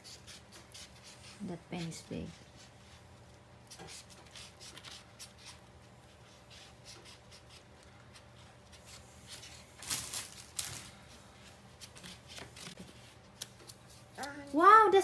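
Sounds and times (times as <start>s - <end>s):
rustling: 8.3s - 14.0s.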